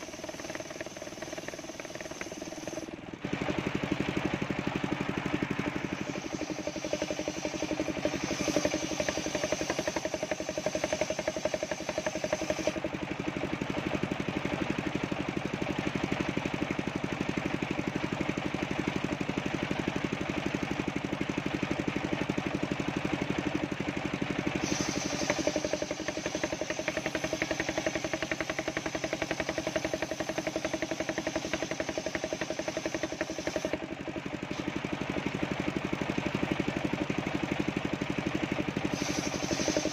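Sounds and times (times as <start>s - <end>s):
high saw whine: 0.0s - 3.1s, 4.4s - 13.1s, 24.3s - 34.7s, 38.9s - 39.9s.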